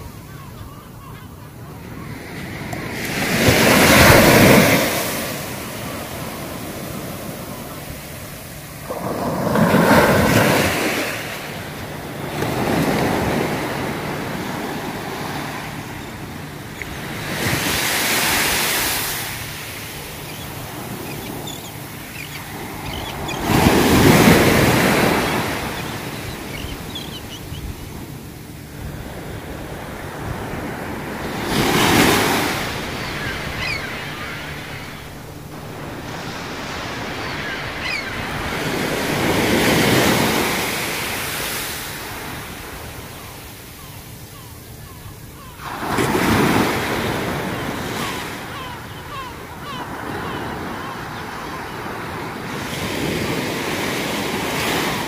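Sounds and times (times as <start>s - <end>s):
sea waves breaking on beach: 1.8s - 55.0s.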